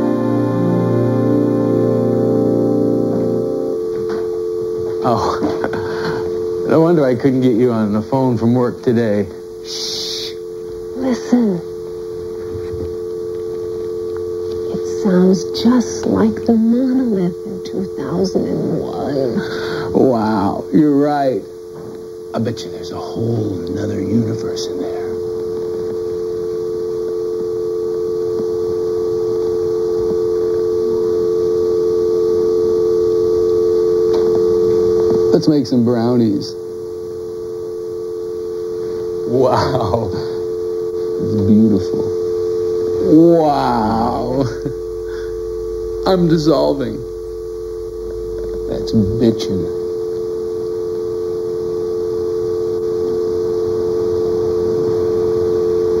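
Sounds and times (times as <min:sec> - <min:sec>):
telephone dial tone: 0:24.5 - 0:35.3.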